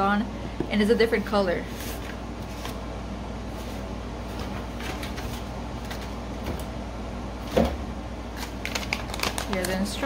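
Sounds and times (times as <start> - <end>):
steady low hum: 0.0 - 10.0
packaging being handled: 8.3 - 10.0.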